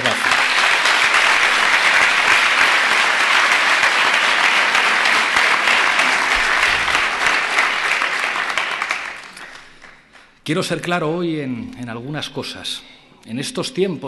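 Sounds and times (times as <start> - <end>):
large audience applauding: 0.0 - 10.4.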